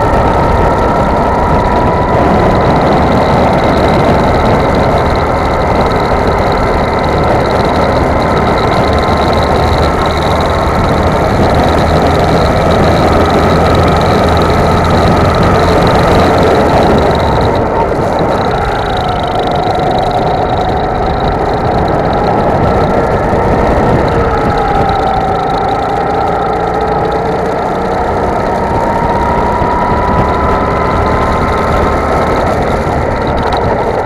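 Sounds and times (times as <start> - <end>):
go-kart engine running: 0.0 - 34.0.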